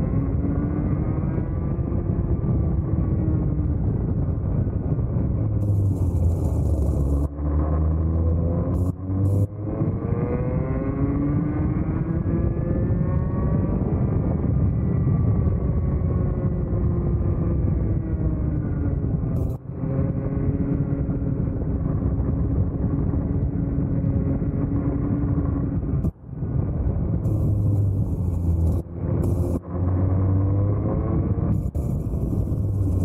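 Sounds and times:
heavy low rumble: 0:00.0 - 0:11.0, 0:11.9 - 0:33.0
kart engine running hard: 0:27.3 - 0:33.0.

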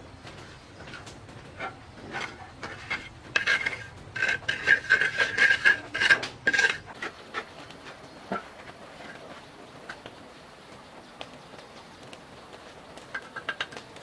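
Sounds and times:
metal scraping and clinking: 0:00.8 - 0:09.4.

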